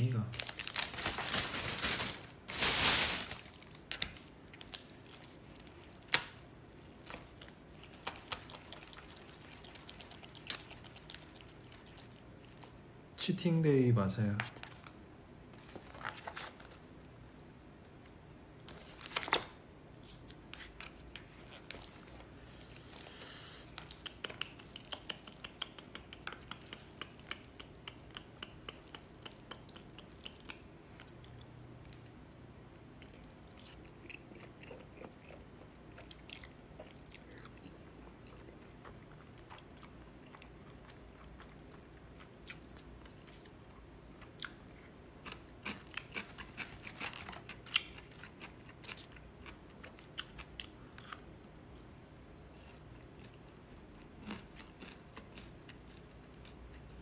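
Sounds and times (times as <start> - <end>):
person chewing with mouth clicks: 20.6 - 57.0.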